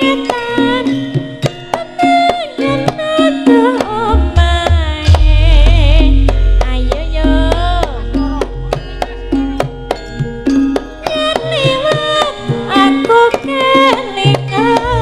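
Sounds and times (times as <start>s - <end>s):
person singing ornamented vocals: 0.0s - 9.9s
ringing metallophone tones: 0.0s - 15.0s
drum strokes: 2.8s - 15.0s
deep low ringing note: 5.1s - 9.2s.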